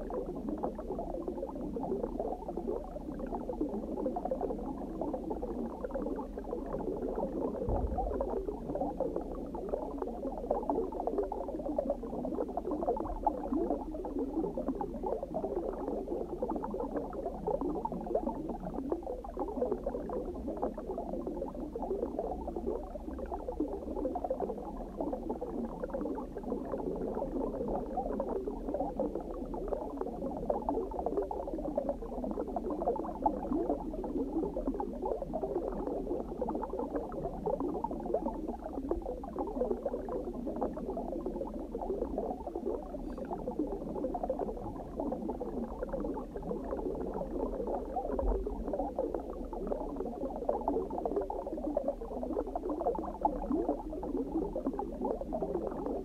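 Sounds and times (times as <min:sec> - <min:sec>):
underwater bubbling: 0:00.0 - 0:56.0
soft low thump: 0:07.5 - 0:10.2, 0:48.2 - 0:48.7
low hum: 0:07.6 - 0:09.5.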